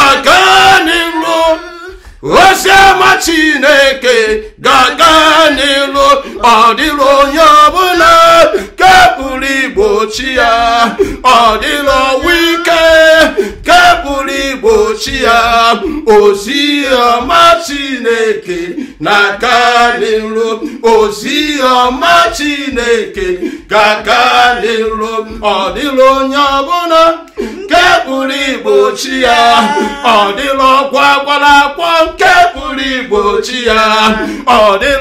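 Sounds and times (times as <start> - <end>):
woman singing along: 0.0 - 3.8, 27.3 - 35.0
man leading a worship chant: 0.0 - 35.0.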